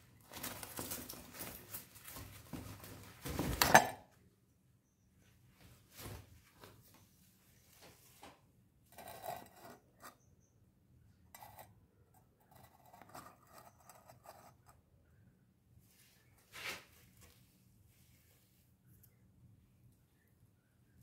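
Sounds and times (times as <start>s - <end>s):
rustles and scuffs on floor: 5.6s - 7.0s, 15.9s - 18.7s.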